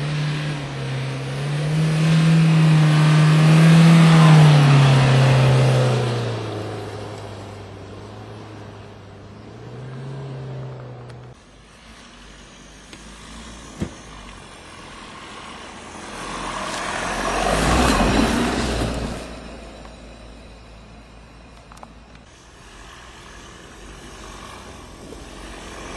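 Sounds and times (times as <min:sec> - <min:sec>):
car engine running: 0:00.0 - 0:17.4
passing car engine and tyres on sand: 0:00.0 - 0:25.9.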